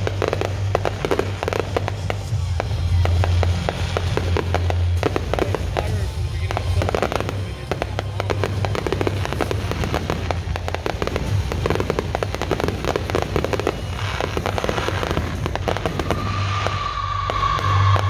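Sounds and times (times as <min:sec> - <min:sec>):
fireworks bangs and crackles: 0:00.0 - 0:18.0
high whistle: 0:15.8 - 0:18.0.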